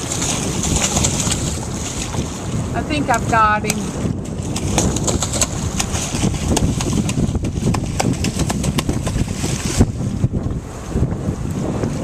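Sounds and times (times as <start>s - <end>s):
water splashing against boat: 0.0s - 12.0s
wind buffeting microphone: 0.0s - 12.0s
sharp slaps and knocks: 6.5s - 9.2s.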